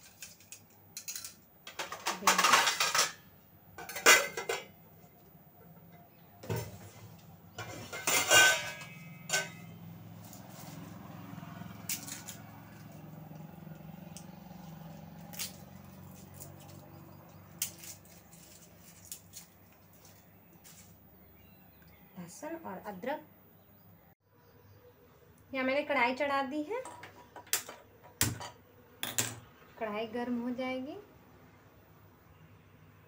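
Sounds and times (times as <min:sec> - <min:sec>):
steel dishes clinking: 0:03.8 - 0:04.8, 0:07.6 - 0:09.8.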